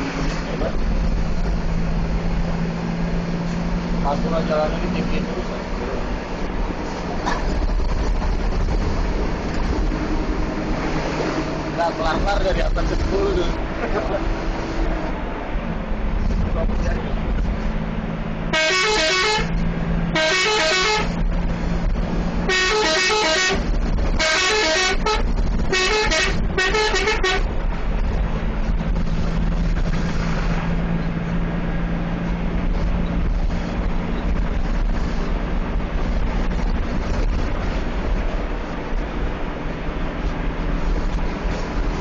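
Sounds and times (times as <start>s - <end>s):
bus engine drone: 0.0s - 42.0s
multi-tone musical bus horn: 18.5s - 21.2s, 22.4s - 27.5s.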